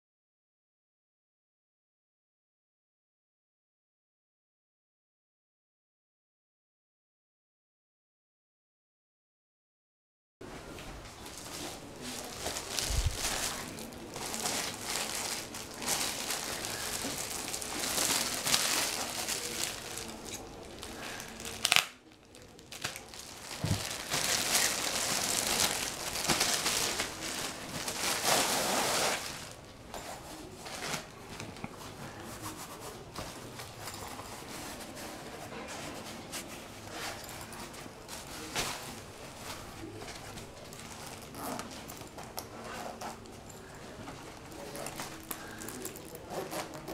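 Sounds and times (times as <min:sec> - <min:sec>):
plastic bag crinkling: 0:11.2 - 0:29.7, 0:40.6 - 0:42.2, 0:44.2 - 0:46.9
loud plastic crackle: 0:11.2 - 0:29.8, 0:44.4 - 0:46.9.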